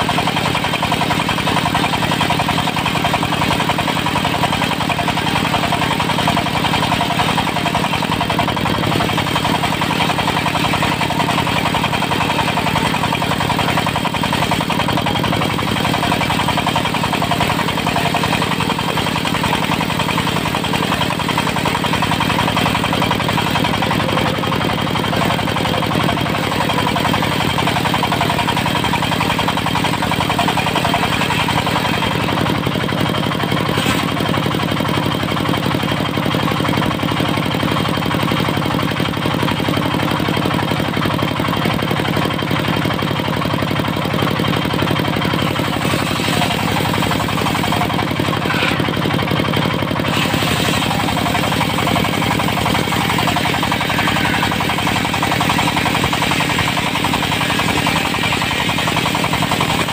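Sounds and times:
diesel engine under load: 0:00.0 - 0:59.9
saw blade cutting wood: 0:01.1 - 0:33.0, 0:33.6 - 0:34.6, 0:45.4 - 0:49.2, 0:50.0 - 0:59.9.

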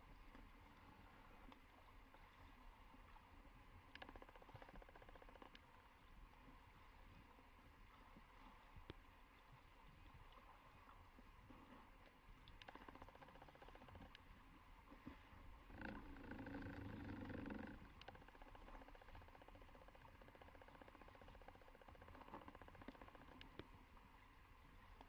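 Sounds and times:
underwater hiss and rumble: 0:00.0 - 0:25.0
faint rapid clicking: 0:03.9 - 0:05.9, 0:12.0 - 0:14.3, 0:15.8 - 0:23.9.

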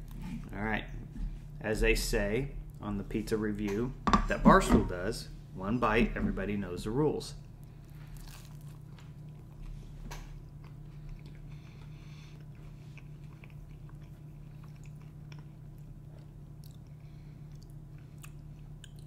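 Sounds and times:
steady low hum: 0:00.0 - 0:19.0
man chewing crunchy food: 0:07.4 - 0:19.0.

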